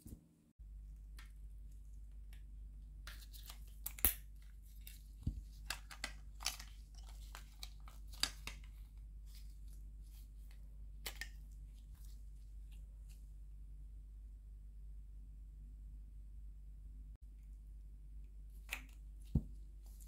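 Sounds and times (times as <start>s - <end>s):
low steady hum: 0.0s - 20.0s
plastic clicks and crackles: 5.6s - 8.7s.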